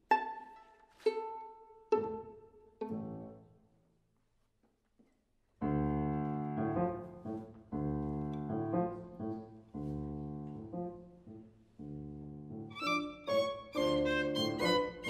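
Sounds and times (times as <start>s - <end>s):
piano chords: 5.6s - 15.0s.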